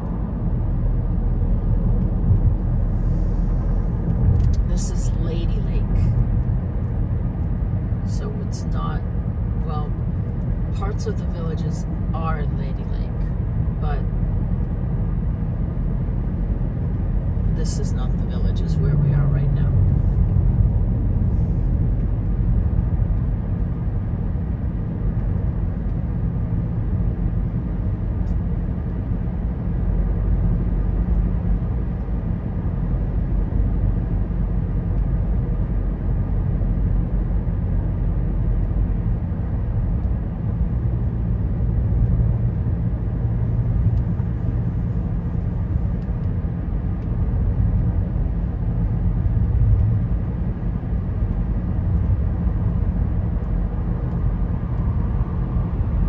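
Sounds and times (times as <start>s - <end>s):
car tyres and engine rumble: 0.0s - 56.0s.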